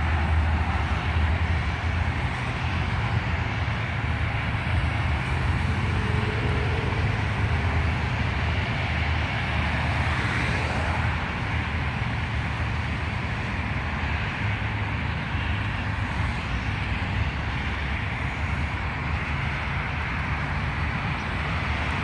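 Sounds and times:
road traffic noise: 0.0 - 22.0
vehicle passing: 4.6 - 11.0.

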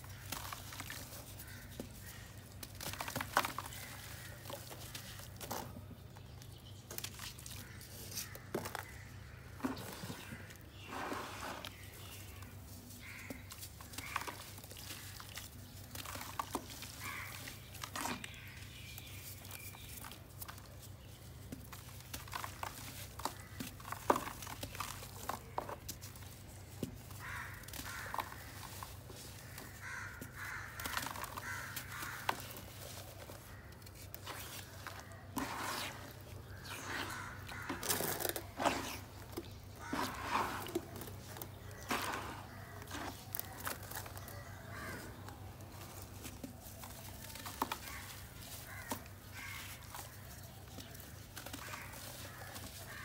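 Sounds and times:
dry clay crumbling and scraping: 0.0 - 53.0
wet mud squelching and sloshing: 30.4 - 53.0.

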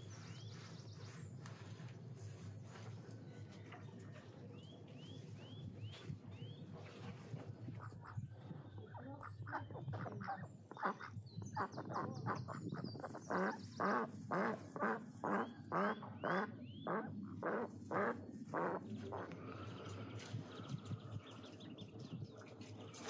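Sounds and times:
ducks quacking: 7.6 - 21.2.

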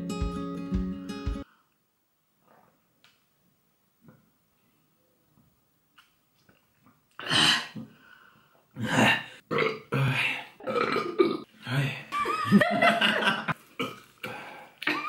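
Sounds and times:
person belching loudly: 8.8 - 11.5.

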